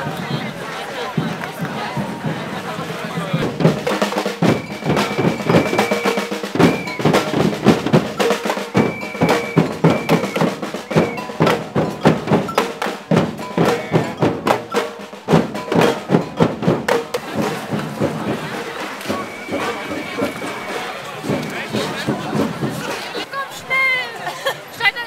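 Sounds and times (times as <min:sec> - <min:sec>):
drumming on metal bins and drums: 0:01.1 - 0:23.3
high held tones: 0:03.6 - 0:16.7, 0:19.0 - 0:21.5.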